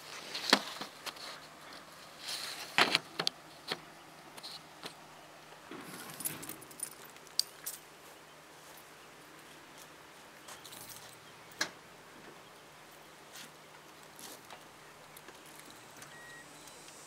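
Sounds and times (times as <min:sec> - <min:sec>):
keys jangling: 0:05.9 - 0:07.8.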